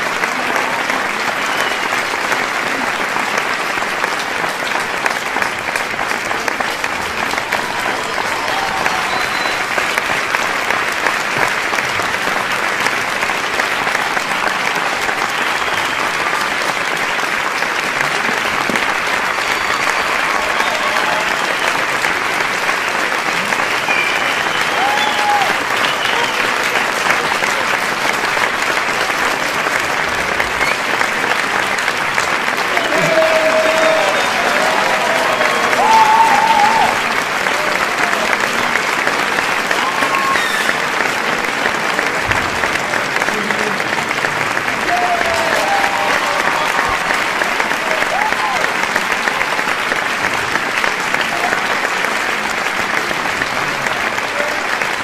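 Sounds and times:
crowd applauding: 0.0 - 55.0
shouts and cheers: 7.2 - 10.1, 19.1 - 22.2, 23.4 - 26.7, 32.6 - 38.8, 39.6 - 41.1, 44.7 - 49.6, 51.1 - 51.8.

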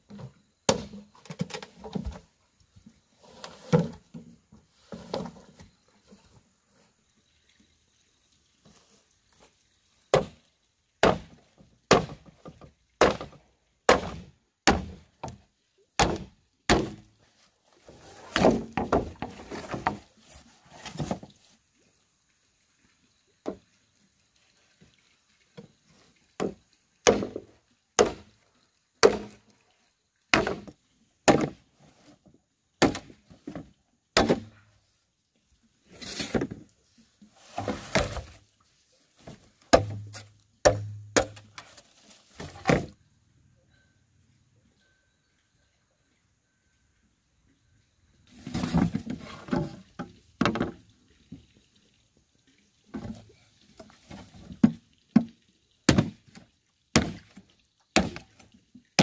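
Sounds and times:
machete chopping bamboo: 0.7 - 1.6, 11.0 - 12.3, 13.0 - 15.4, 16.0 - 17.1, 26.4 - 27.4, 28.0 - 28.3, 29.0 - 29.4, 30.3 - 31.6, 32.8 - 33.2, 34.2 - 34.6, 39.7 - 41.6, 55.9 - 56.2, 57.0 - 57.4, 58.0 - 58.3.

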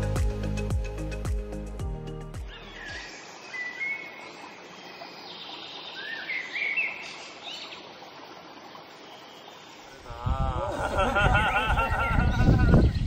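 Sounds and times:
birds chirping: 2.4 - 8.0
stream trickling: 2.4 - 13.0.

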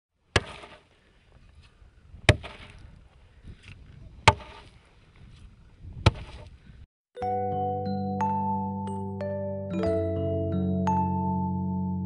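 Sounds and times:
hand tool striking coal: 0.3 - 0.9, 2.3 - 2.8, 3.6 - 4.8, 6.0 - 6.5.

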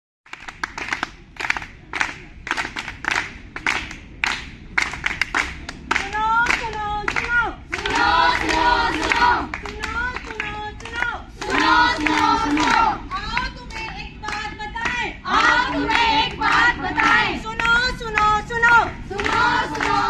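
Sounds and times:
people clapping in rhythm: 0.3 - 20.0
group chanting in unison: 7.7 - 9.6, 11.3 - 13.2, 15.0 - 17.5, 18.6 - 20.0.

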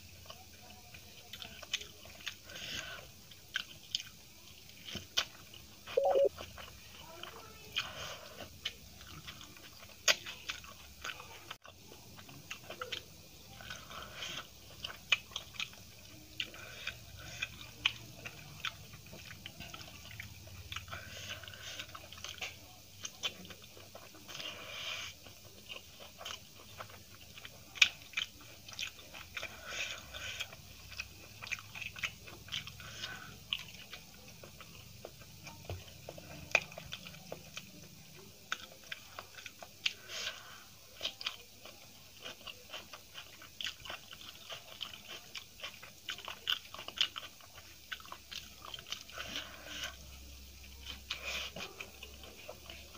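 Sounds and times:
close chewing: 0.0 - 52.9
wet mouth clicks and lip smacks: 6.0 - 6.3.

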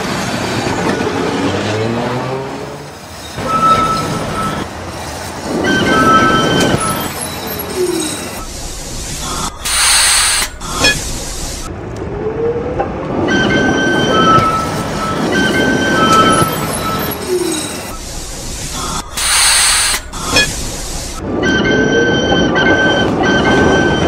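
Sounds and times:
tram rumbling on rails: 0.0 - 24.0
burst of hiss: 7.9 - 11.7, 17.4 - 21.2.

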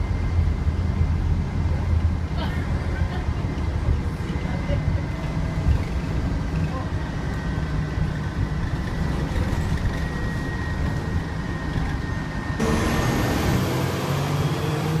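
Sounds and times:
bus engine rumble: 0.0 - 15.0
street traffic noise: 12.6 - 15.0.

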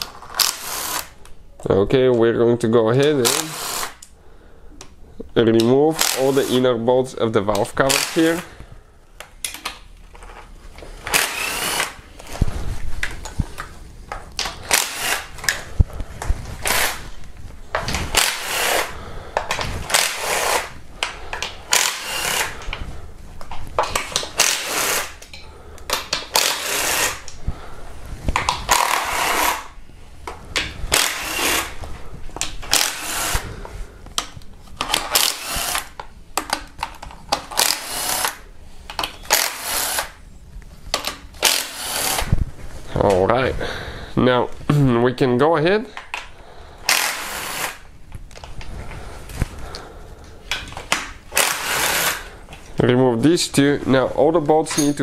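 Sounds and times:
power ratchet spinning bolts: 11.1 - 11.9, 14.7 - 15.3, 18.2 - 18.9, 21.7 - 22.6, 24.4 - 25.2, 26.3 - 27.2, 28.7 - 29.7, 30.9 - 31.7, 32.7 - 33.4, 35.1 - 35.9, 37.6 - 38.4, 39.3 - 40.1, 41.4 - 42.3, 51.4 - 52.2.

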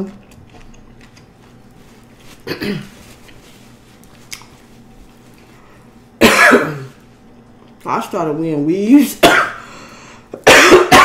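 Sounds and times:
soft mouth sounds and clicks: 4.0 - 4.6
biting into soft food: 4.0 - 5.5.

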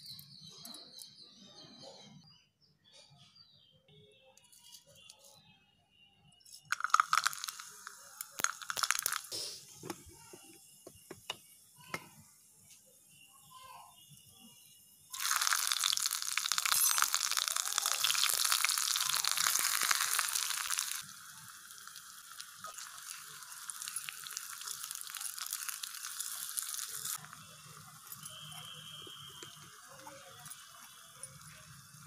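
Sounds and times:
wooden spoon stirring: 6.7 - 9.2
onion sizzling in hot oil: 6.7 - 9.9, 15.1 - 32.0.

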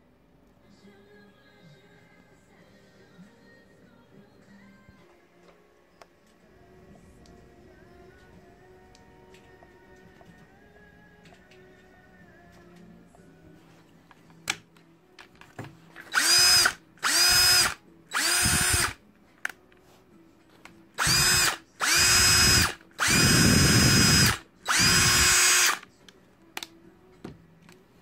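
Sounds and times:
cordless drill motor whining: 16.1 - 19.0, 21.0 - 25.8.

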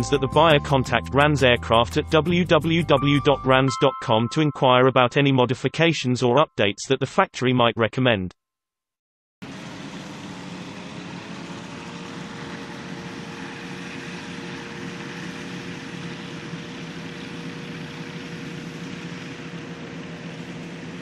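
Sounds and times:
two-stroke engine and propeller: 9.4 - 21.0.

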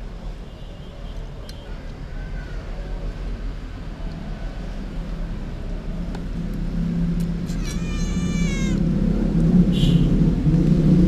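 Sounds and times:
high wavering cry: 7.5 - 8.8.

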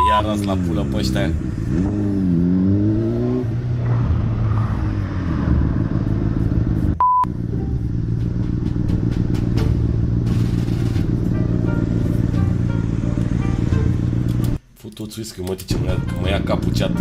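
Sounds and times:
short beep tone: 0.0 - 0.3, 7.0 - 7.3
motorcycle engine running: 5.6 - 14.6.

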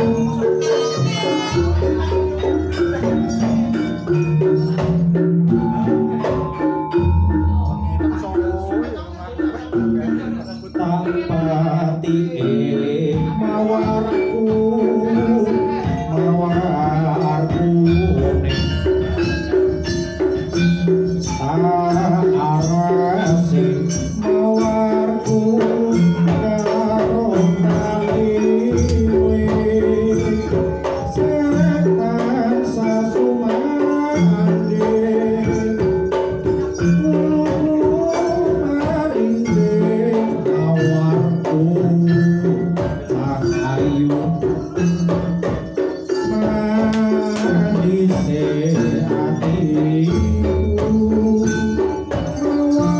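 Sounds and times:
traditional ensemble music: 0.0 - 52.9
barrel drums beating: 12.6 - 52.9.

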